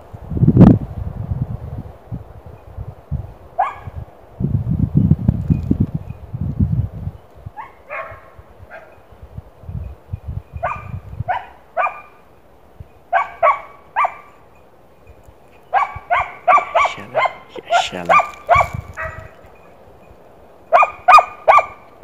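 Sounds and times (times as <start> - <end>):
hound yelping: 3.6 - 3.9, 7.6 - 8.9, 13.1 - 14.4, 15.7 - 19.4, 20.7 - 21.8.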